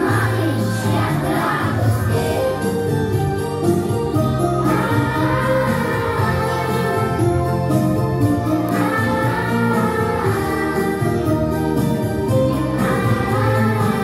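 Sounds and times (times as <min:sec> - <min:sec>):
boys singing together: 0:00.0 - 0:02.6, 0:04.6 - 0:07.2, 0:08.6 - 0:11.0, 0:12.5 - 0:14.0
instrumental accompaniment: 0:00.0 - 0:14.0.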